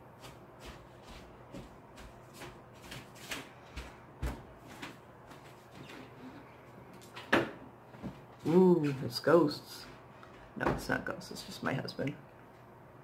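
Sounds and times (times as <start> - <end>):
faint household knocks and clicks: 6.9 - 8.3, 10.3 - 11.0.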